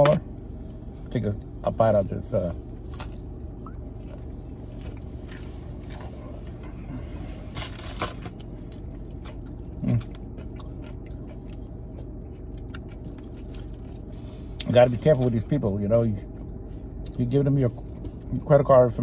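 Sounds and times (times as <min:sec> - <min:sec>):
low car cabin hum: 0:00.0 - 0:19.0
crunching and chewing fried food: 0:02.7 - 0:15.6, 0:16.2 - 0:18.7.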